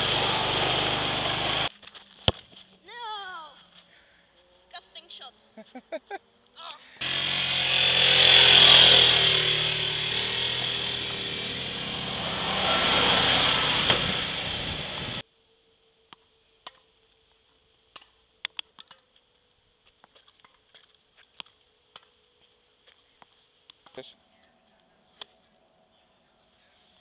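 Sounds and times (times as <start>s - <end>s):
quad bike engine running: 0.0s - 1.7s, 7.0s - 15.2s.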